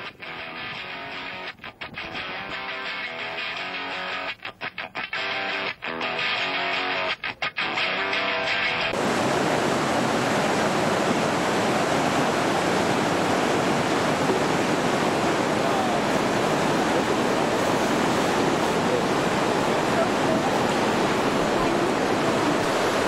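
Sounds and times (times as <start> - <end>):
water rushing over rocks: 8.9 - 23.0.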